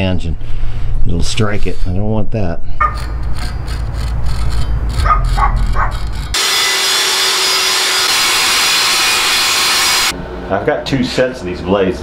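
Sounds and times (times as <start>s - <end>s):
grinder disc grinding metal: 2.8s - 10.1s
low rumble: 4.1s - 6.4s.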